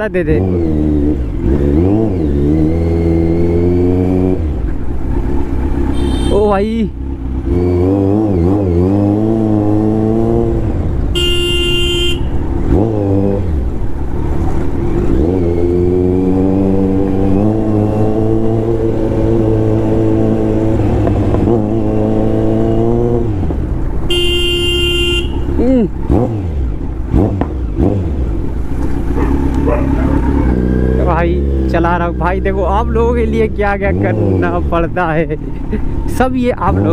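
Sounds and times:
motorcycle engine running: 0:04.4 - 0:36.9
horn honking: 0:05.8 - 0:06.6, 0:11.1 - 0:12.5, 0:24.0 - 0:25.7.

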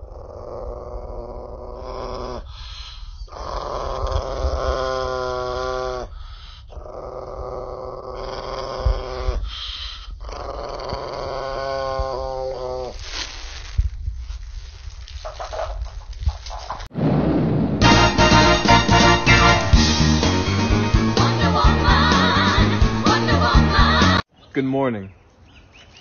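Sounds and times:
small dog growling: 0:00.0 - 0:13.0.

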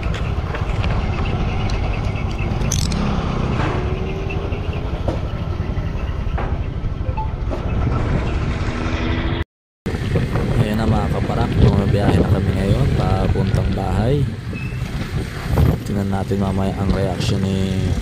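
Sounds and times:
road noise: 0:00.0 - 0:18.0
wind rumbling on microphone: 0:09.9 - 0:18.0.

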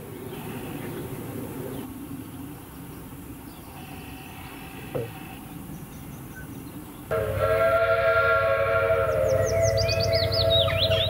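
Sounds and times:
steam locomotive chime whistle: 0:07.1 - 0:11.0
high chirps: 0:08.4 - 0:11.0.

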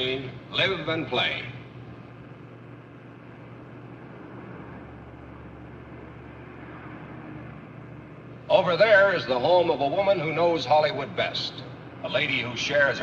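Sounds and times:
bus engine and road hum: 0:02.3 - 0:10.1.

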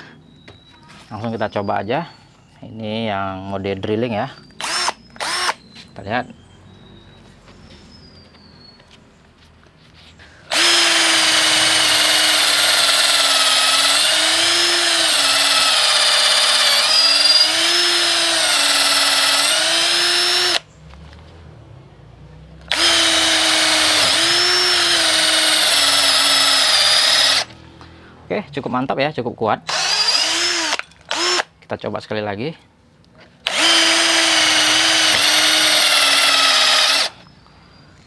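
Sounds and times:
drill motor whine: 0:04.6 - 0:05.6, 0:10.5 - 0:20.6, 0:22.7 - 0:27.6, 0:29.7 - 0:31.4, 0:33.5 - 0:37.3.

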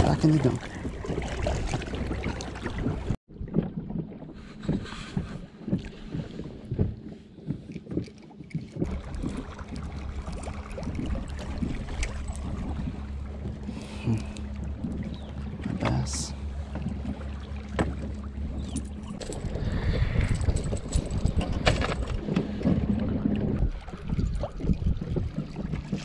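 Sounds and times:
boat motor humming: 0:00.0 - 0:26.0
fishing gear knocking and clattering: 0:05.2 - 0:09.4, 0:17.7 - 0:19.6, 0:20.2 - 0:23.0.

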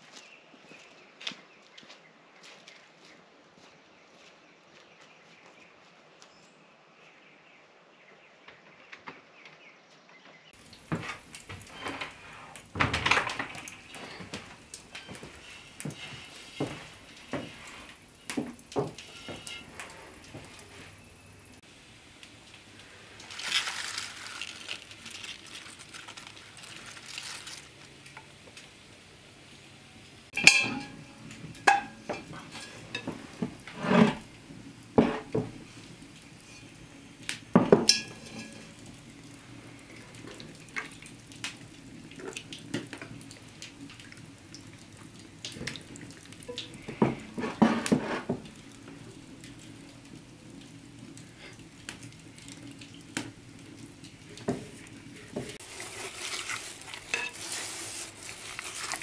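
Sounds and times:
bowls and pail clattering: 0:10.7 - 0:21.6, 0:30.4 - 0:35.7, 0:37.5 - 0:41.1, 0:46.4 - 0:48.6, 0:54.3 - 0:59.0.

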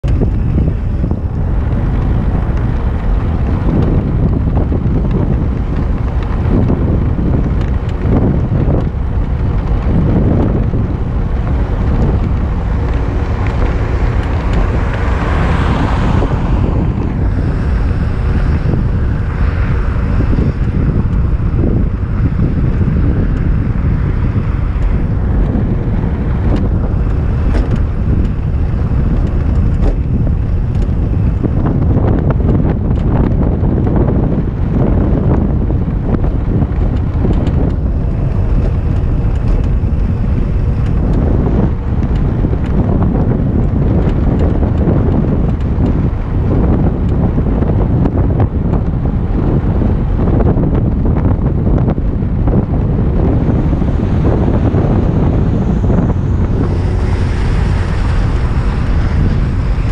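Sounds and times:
wind buffeting microphone: 0:00.0 - 0:59.9.

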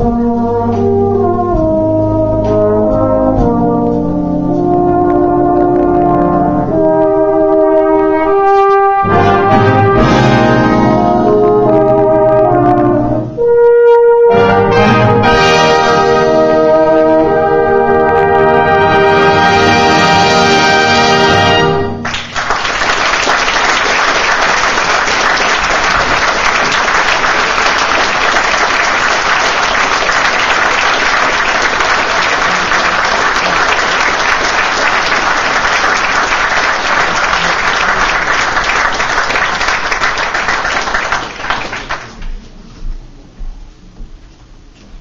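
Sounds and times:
audience applauding: 0:22.0 - 0:42.4.

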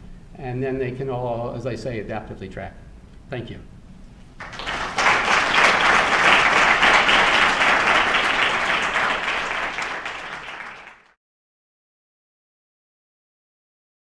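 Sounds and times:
audience applauding: 0:04.4 - 0:11.2.

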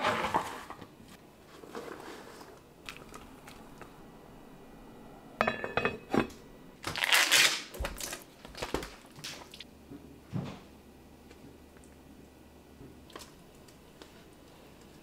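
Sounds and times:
plastic pack crackling rustle: 0:06.8 - 0:09.6.

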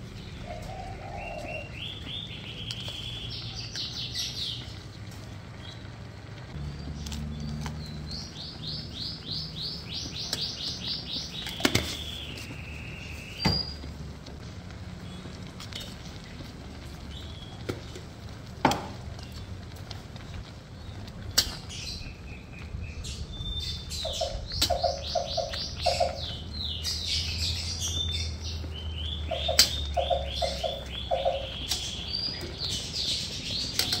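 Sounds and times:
birds chirping in trills: 0:00.0 - 0:04.8, 0:06.5 - 0:13.9, 0:21.6 - 0:34.0.

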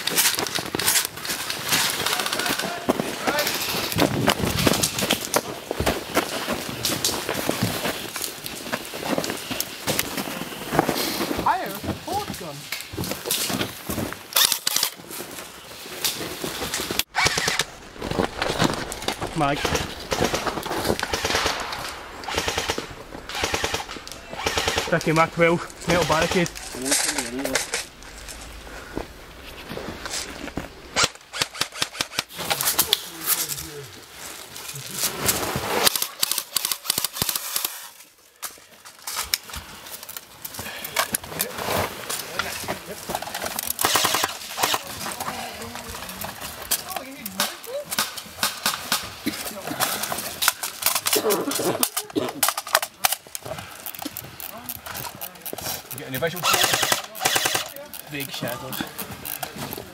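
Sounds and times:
airsoft guns firing: 0:17.1 - 0:17.8, 0:19.4 - 0:25.2, 0:43.8 - 0:44.9, 0:56.4 - 0:57.8.

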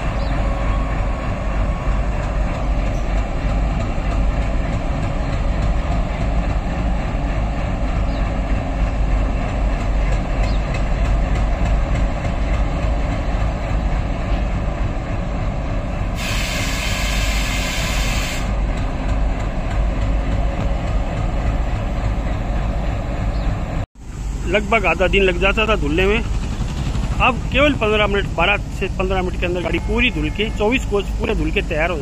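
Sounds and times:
diesel locomotive engine rumble: 0:00.0 - 0:32.0
loud hiss: 0:16.2 - 0:18.6.

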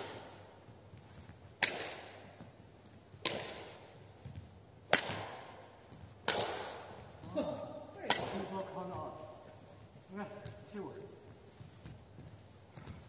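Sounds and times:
badminton racket hits: 0:00.0 - 0:09.5.

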